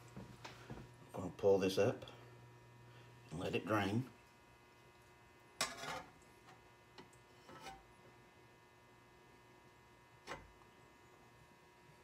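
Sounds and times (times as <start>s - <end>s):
low electrical hum: 0.0s - 12.0s
metal spatula clanking on skillet: 5.6s - 6.1s.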